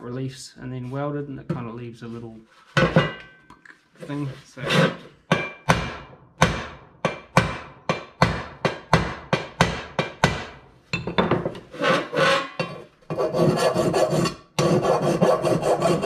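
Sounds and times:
file rasping on steel: 4.6 - 5.1, 11.7 - 16.0.

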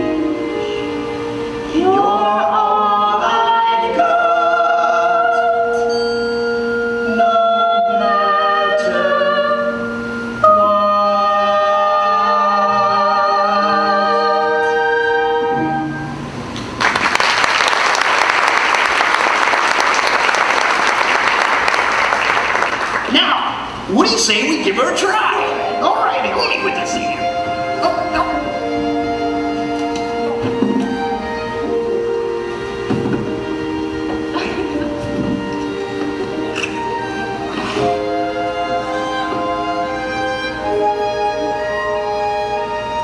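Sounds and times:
instrumental accompaniment: 0.0 - 16.8, 23.7 - 43.0
man and woman singing duet: 1.6 - 6.1, 6.7 - 16.1
audience applause: 16.7 - 23.2.

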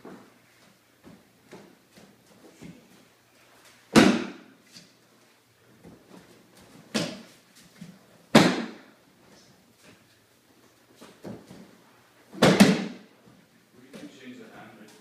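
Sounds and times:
body slapping onto mat: 3.9 - 4.5, 6.6 - 7.4, 8.3 - 8.9, 12.3 - 13.1.

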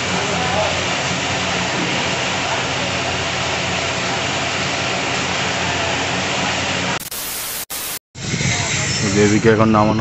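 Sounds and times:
pressure washer jet hissing: 6.8 - 8.0.

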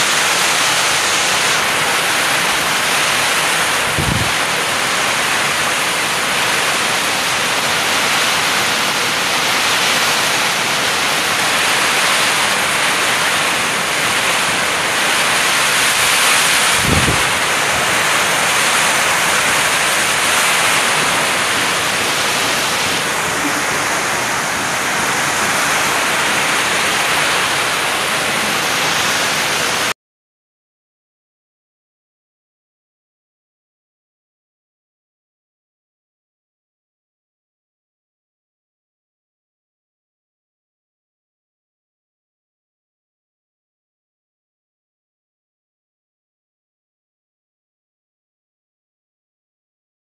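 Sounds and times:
heavy rain pouring: 0.0 - 30.0.

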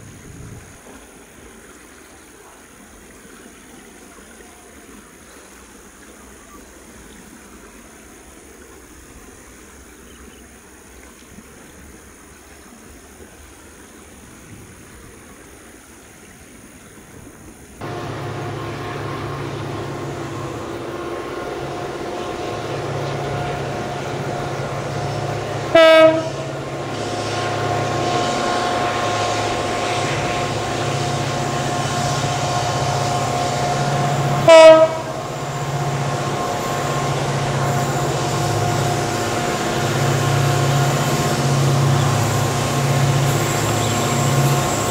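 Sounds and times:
locomotive engine drone: 17.2 - 44.9
locomotive horn blasts: 17.8 - 44.9
thin high whine: 17.8 - 44.9.

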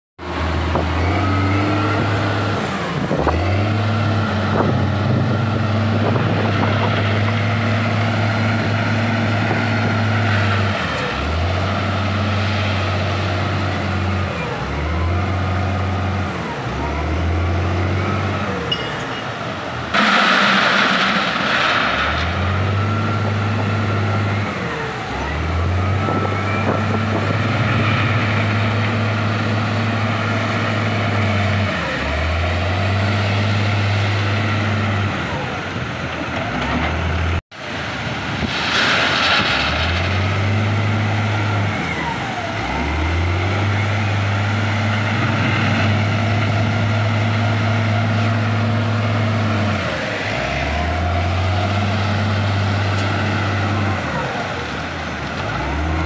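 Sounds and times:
wheel loader diesel engine revving: 0.2 - 18.7, 19.6 - 56.0
loud rush of noise: 18.0 - 22.9.

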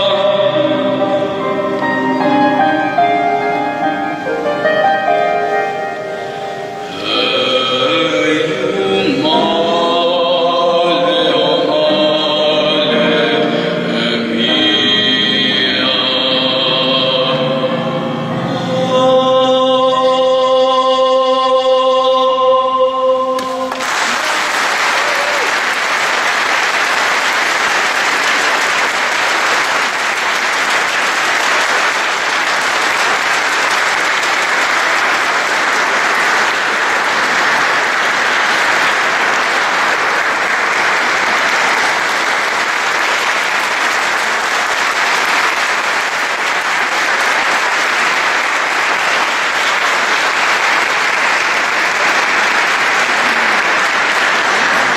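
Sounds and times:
choir singing: 0.0 - 5.2, 6.6 - 23.8
man singing held note: 6.3 - 17.7
audience applause: 23.4 - 54.9.

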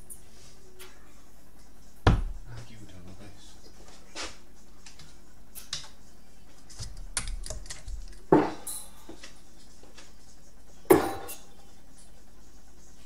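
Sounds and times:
darts thudding into dartboard: 2.0 - 2.4, 8.3 - 8.7, 10.9 - 11.4.

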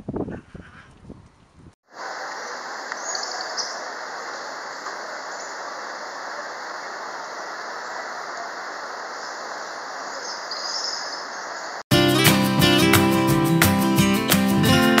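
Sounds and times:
rushing roar of water: 1.9 - 11.8
faint click: 2.3 - 3.1.

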